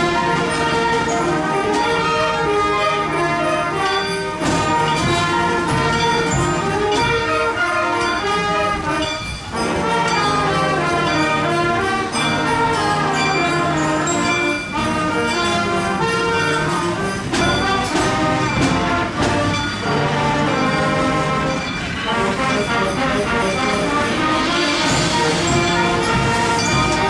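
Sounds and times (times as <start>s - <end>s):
brass music: 0.0s - 27.0s.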